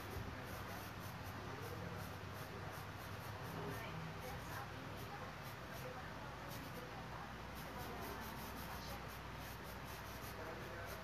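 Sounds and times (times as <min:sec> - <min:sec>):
brush scratching on canvas: 0:00.0 - 0:11.0.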